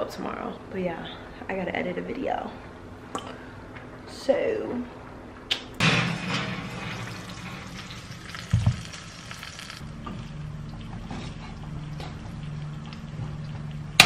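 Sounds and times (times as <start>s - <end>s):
low steady hum: 0.0s - 14.0s
oven door thud: 5.8s - 7.6s
dish sizzling: 5.8s - 9.9s.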